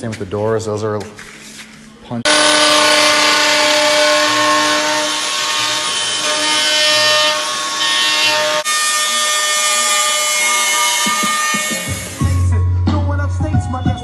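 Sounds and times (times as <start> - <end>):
router whining and cutting wood: 2.3 - 12.4.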